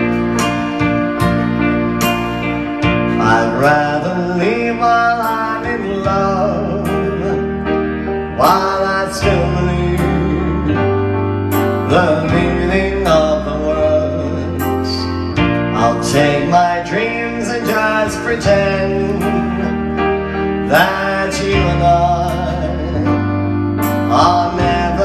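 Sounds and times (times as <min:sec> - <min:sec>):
keyboard playing slow ballad: 0:00.0 - 0:25.0.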